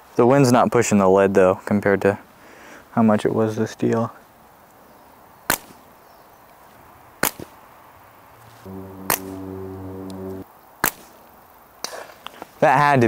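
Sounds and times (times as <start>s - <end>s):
sharp cracks: 7.2s - 7.6s, 8.4s - 11.2s
low hum with overtones: 8.4s - 10.4s.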